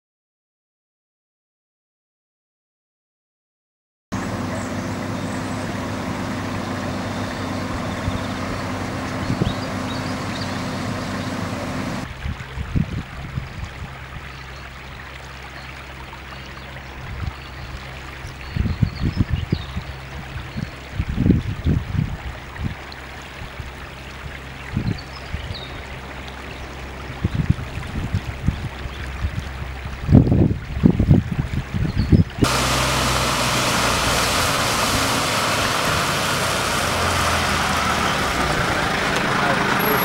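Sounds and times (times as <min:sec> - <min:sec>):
car engine idling: 0:04.2 - 0:12.0, 0:32.4 - 0:40.0
wind buffeting microphone: 0:07.4 - 0:14.4, 0:16.9 - 0:26.0, 0:26.6 - 0:38.8.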